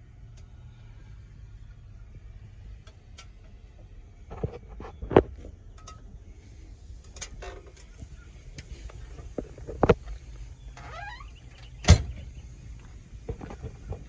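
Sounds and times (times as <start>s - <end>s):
low steady rumble in truck cab: 0.0s - 14.0s.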